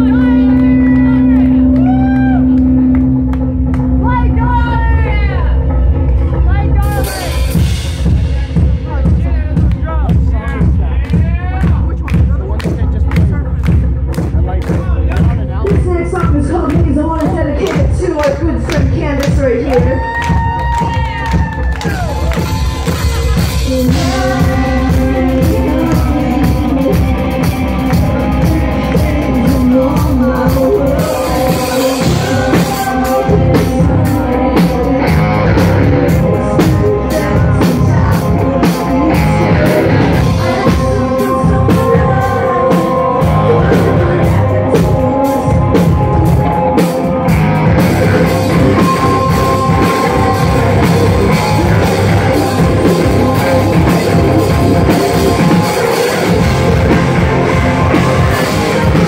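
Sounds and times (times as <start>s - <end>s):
bass guitar: 0.0s - 59.0s
distorted electric guitars: 0.0s - 59.0s
drum kit: 0.0s - 59.0s
person singing: 15.6s - 59.0s.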